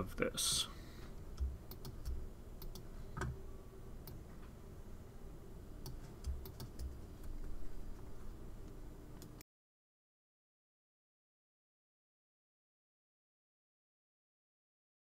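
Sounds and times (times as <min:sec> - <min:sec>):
faint steady hum: 0:00.0 - 0:09.4
mouse and keyboard clicks: 0:05.8 - 0:07.6.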